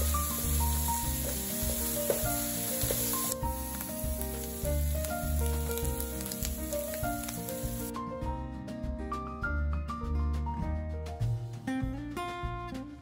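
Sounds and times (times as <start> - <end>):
food sizzling in frying pan: 0.0 - 7.9
background music: 0.0 - 13.0.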